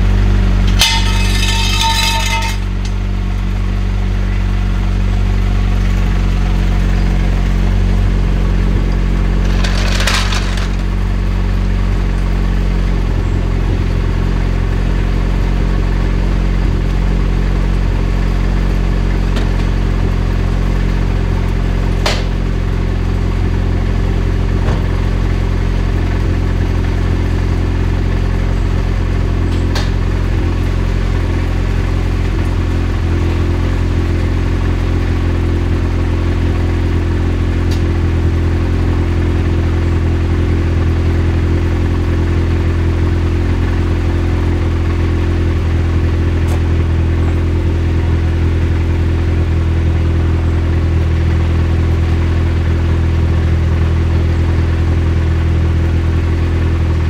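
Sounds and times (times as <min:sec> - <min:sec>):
car engine idling: 0:00.0 - 0:57.0
metallic clink: 0:00.7 - 0:03.0.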